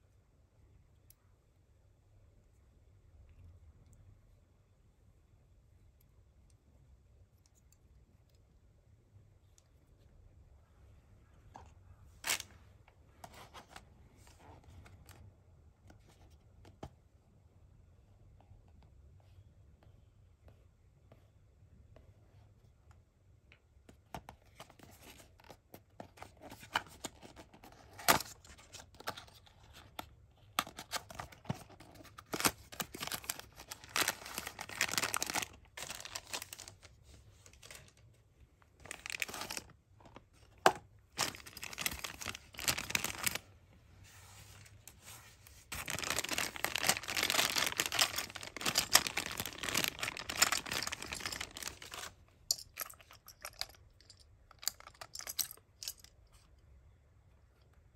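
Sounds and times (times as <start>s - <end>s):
plastic bag crinkling: 30.7s - 36.9s, 38.8s - 39.7s, 41.1s - 43.5s, 45.7s - 53.6s.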